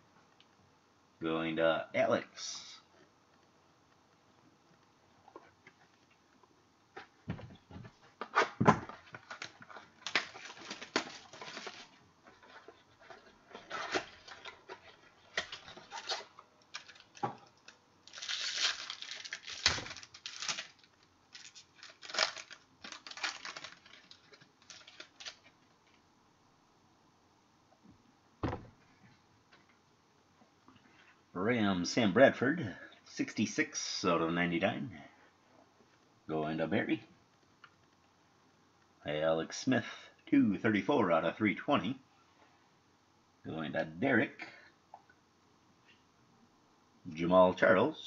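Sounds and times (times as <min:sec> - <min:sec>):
trading cards rustling: 0:09.0 - 0:25.5.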